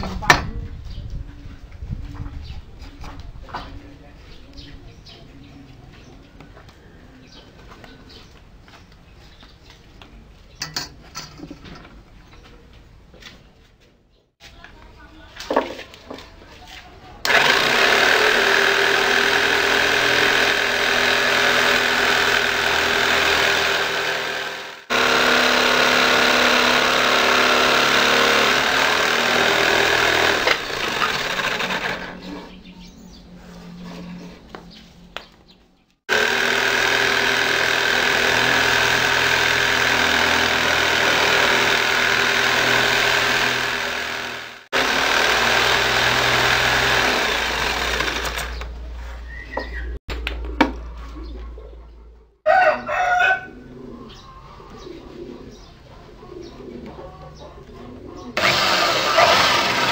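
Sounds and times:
power saw cutting wood: 0:17.2 - 0:32.6, 0:36.1 - 0:48.8, 0:58.4 - 0:59.9.

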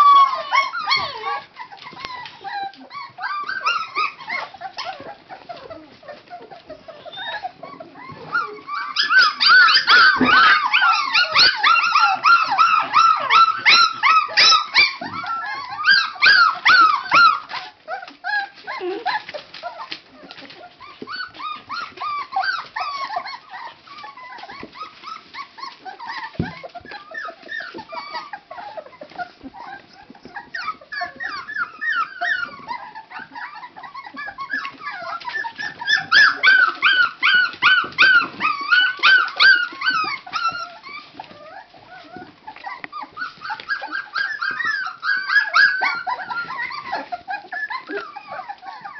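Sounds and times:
puppies whining and yipping: 0:00.0 - 0:48.9.

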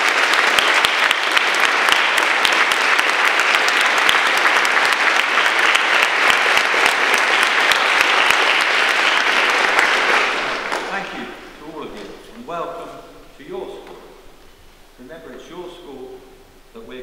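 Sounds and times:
crowd applauding: 0:00.0 - 0:12.1.

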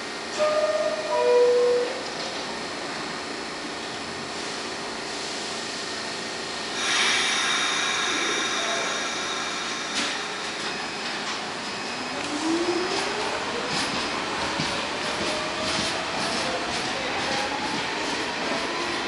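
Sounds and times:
loud air hiss: 0:06.7 - 0:11.2.

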